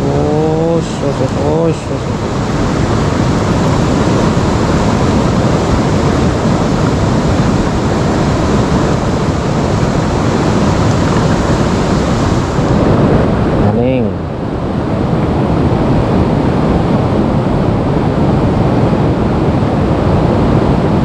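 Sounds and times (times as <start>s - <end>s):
river rushing over stones: 0.0s - 14.0s.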